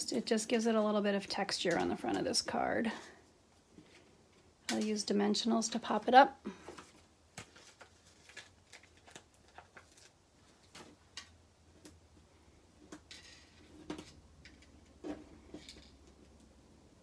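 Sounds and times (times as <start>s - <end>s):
papery rustle: 6.9s - 11.0s.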